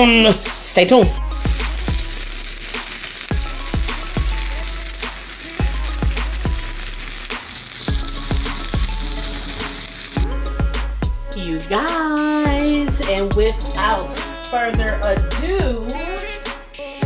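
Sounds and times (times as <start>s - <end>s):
burger patties sizzling: 0.0s - 10.2s
music with bass beat: 0.0s - 17.0s.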